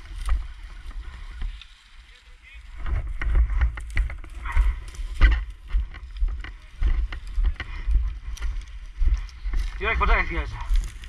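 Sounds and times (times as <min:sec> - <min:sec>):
footsteps through dry grass: 0:00.0 - 0:11.0
wind buffeting microphone: 0:02.6 - 0:11.0.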